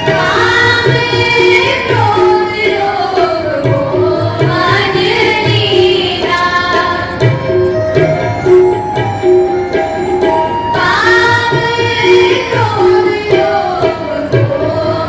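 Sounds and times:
girls singing a hymn: 0.0s - 7.3s, 10.8s - 15.0s
harmonium chords: 0.0s - 15.0s
tabla beat: 0.0s - 15.0s.

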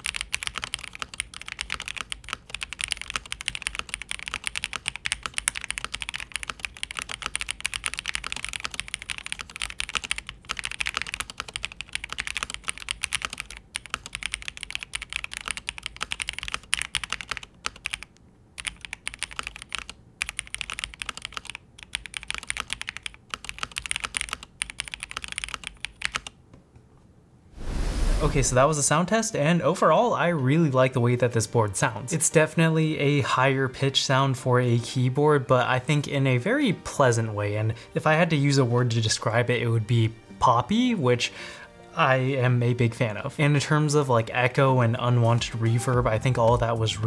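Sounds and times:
fast typing on keyboard: 0.0s - 26.4s.

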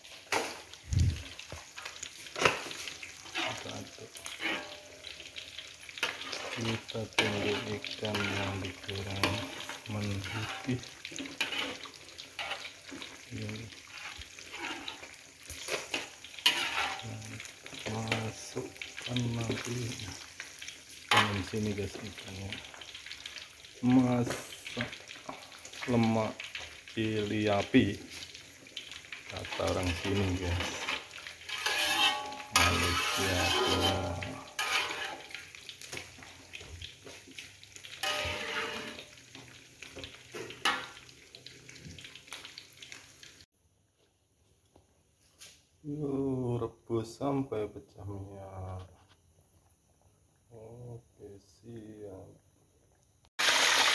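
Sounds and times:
sizzling and bubbling gravy: 0.0s - 53.9s
spatula scraping metal wok: 2.3s - 5.3s, 5.9s - 13.1s, 13.8s - 17.1s, 29.4s - 35.4s, 38.0s - 39.2s.

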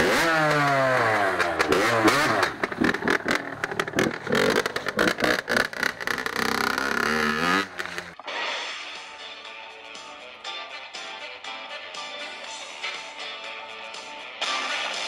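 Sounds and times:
motorcycle engine revving: 0.0s - 8.2s.

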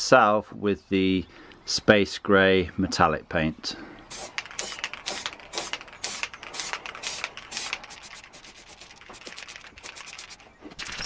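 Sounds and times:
aerosol paint can spraying: 4.1s - 10.4s.

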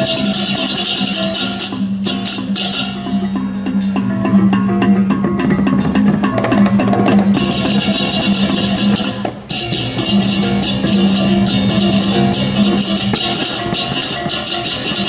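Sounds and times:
hand cymbals clashing: 0.0s - 4.0s, 7.3s - 15.0s
drums: 0.0s - 15.0s
gamelan ensemble playing: 0.0s - 15.0s.

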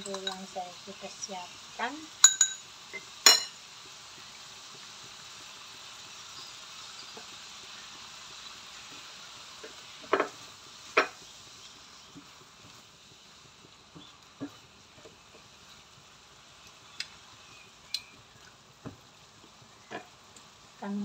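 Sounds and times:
squid sizzling in a pan: 0.0s - 21.0s
sharp metal clinks: 2.2s - 2.6s.

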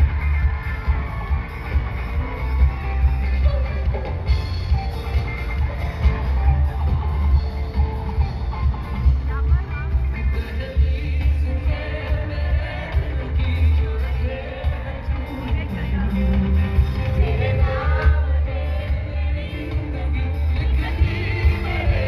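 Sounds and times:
live pop music over pa: 0.0s - 22.0s
man singing: 9.9s - 22.0s.

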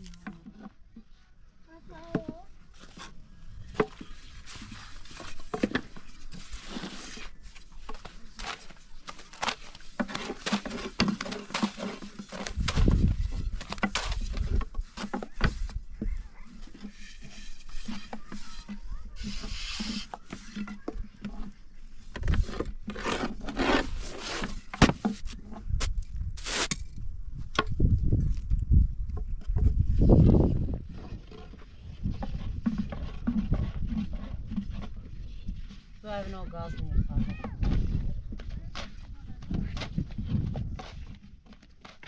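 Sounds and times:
objects being handled: 0.0s - 27.0s.

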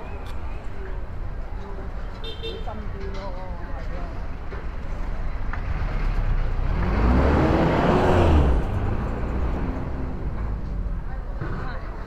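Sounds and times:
motor vehicle passing: 5.5s - 12.0s.

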